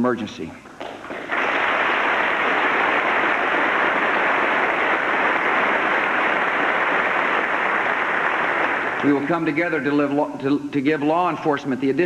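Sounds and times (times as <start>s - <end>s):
crowd applauding: 0.8s - 10.1s.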